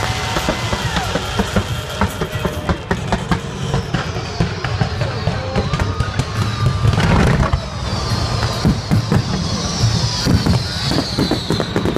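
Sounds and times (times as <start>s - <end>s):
fireworks bursting and crackling: 0.0s - 11.9s.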